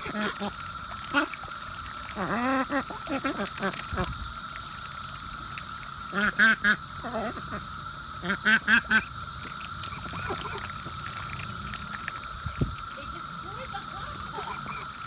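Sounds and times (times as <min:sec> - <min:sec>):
ducks quacking: 0:00.0 - 0:04.2, 0:06.1 - 0:09.1, 0:09.8 - 0:11.3, 0:12.9 - 0:15.0
cicadas droning: 0:00.0 - 0:15.0.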